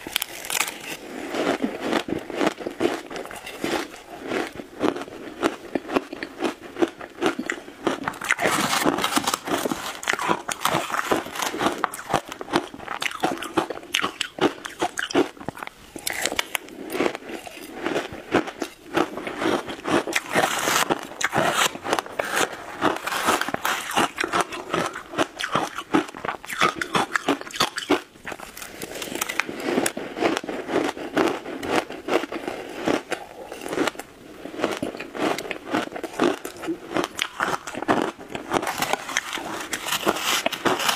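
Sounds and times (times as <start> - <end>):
shaved ice crunching: 0.0 - 4.5, 7.2 - 15.3, 18.6 - 24.9, 36.5 - 40.9.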